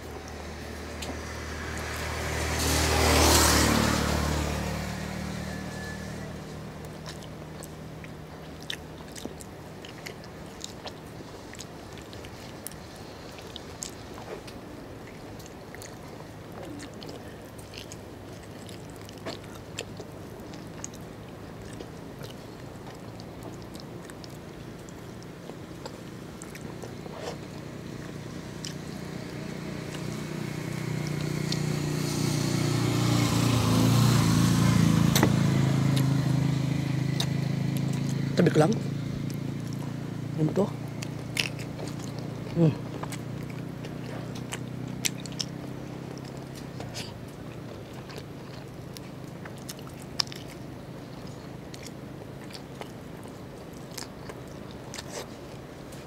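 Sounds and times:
chewing meat off a bone: 0.0 - 56.0
vehicle passing by: 0.0 - 56.0
low background hum: 4.0 - 56.0.

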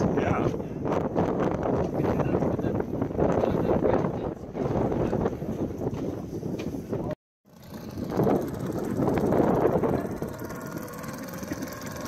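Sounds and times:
wind on microphone: 0.0 - 12.0
small boat engine humming: 7.5 - 12.0.

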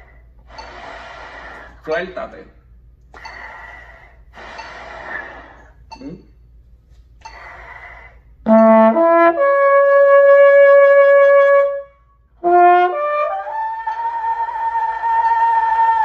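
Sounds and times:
quick breath: 0.0 - 1.9, 3.1 - 5.9.

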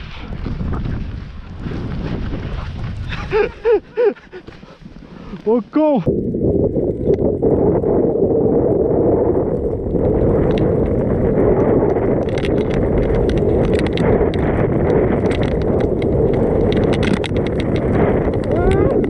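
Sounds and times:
snow hissing and scraping: 0.0 - 6.0
wind rushing over microphone: 0.0 - 19.0.

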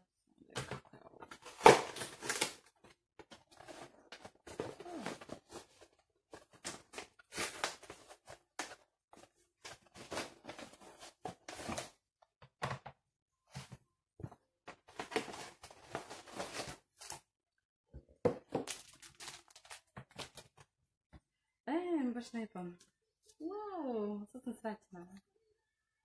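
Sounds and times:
cardboard and paper rustling: 0.6 - 12.1, 13.5 - 17.3, 18.2 - 20.7.

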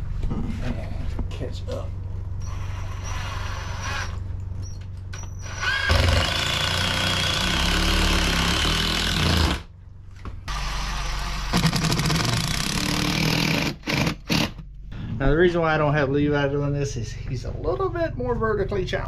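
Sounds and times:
power driver driving screws: 5.4 - 9.6.

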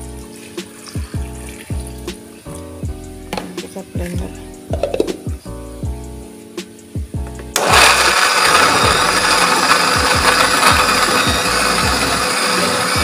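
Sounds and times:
blender running: 7.5 - 13.0.

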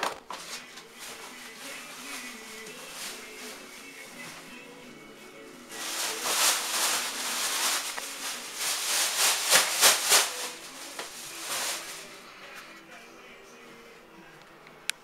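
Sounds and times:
rustling and rubbing on microphone: 5.8 - 12.1.

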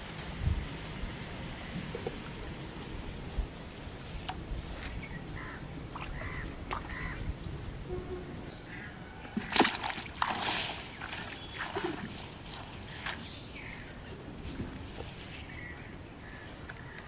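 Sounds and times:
fishing line torn out of water: 9.4 - 10.9.

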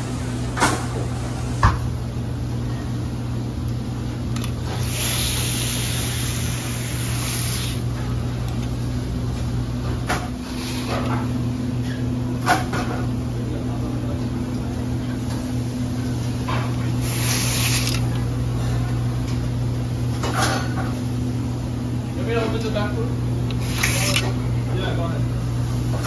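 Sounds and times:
kitchen equipment humming: 0.0 - 26.0.

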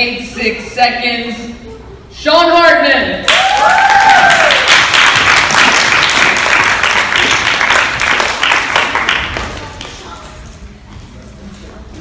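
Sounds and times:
people whooping: 3.3 - 4.8
audience clapping and cheering: 3.3 - 10.0.

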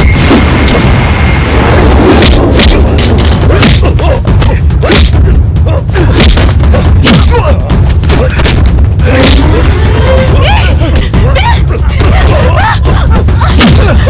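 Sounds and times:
deep rumble: 0.0 - 14.0
grunts and cries: 3.4 - 14.0.

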